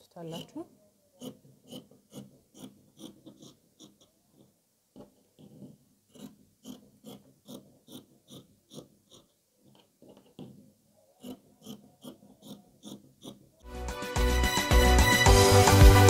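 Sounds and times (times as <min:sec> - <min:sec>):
scissors snipping fabric: 0:01.2 - 0:10.6, 0:11.2 - 0:13.4.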